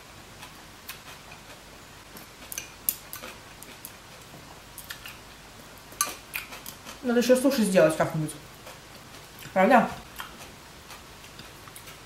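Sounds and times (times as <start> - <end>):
soft chewing: 0.3 - 7.1, 8.4 - 12.0.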